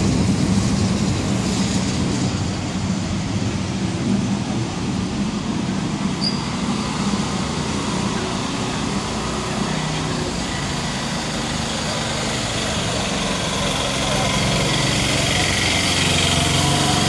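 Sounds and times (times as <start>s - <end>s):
street noise: 0.0s - 17.0s
small engine running: 7.0s - 17.0s.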